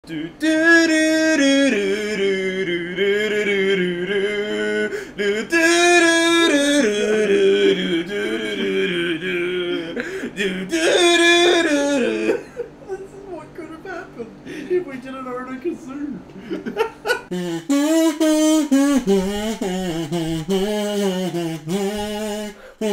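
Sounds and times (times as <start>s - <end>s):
kazoo playing a melody: 0.4s - 12.4s, 17.2s - 22.9s.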